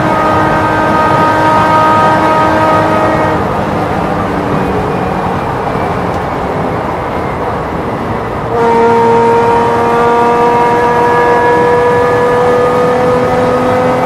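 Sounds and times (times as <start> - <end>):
race car engine: 0.0 - 14.0
wind and road noise: 0.0 - 14.0.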